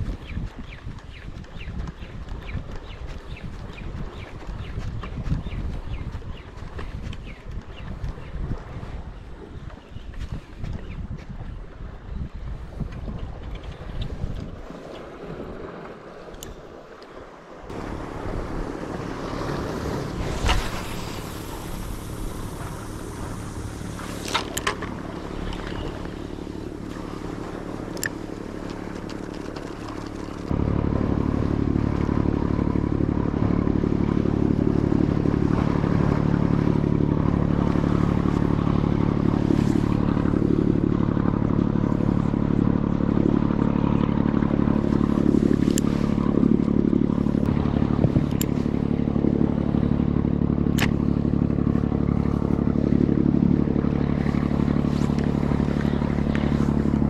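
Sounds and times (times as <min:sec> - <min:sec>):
steady engine drone: 0:00.0 - 0:57.0.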